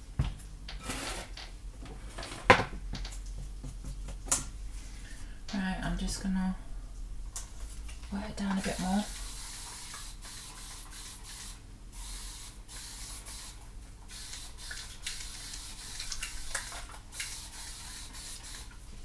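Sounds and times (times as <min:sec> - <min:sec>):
spray bottle hissing: 0:08.6 - 0:18.7.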